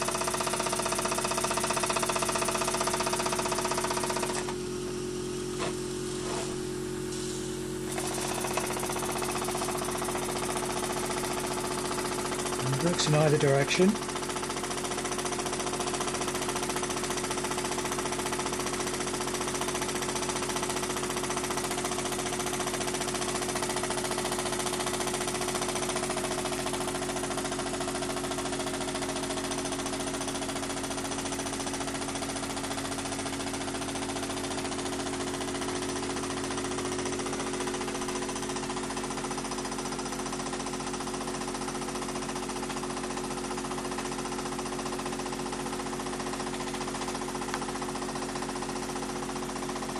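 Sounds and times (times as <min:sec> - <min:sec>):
steady hum: 0:12.0 - 0:14.1.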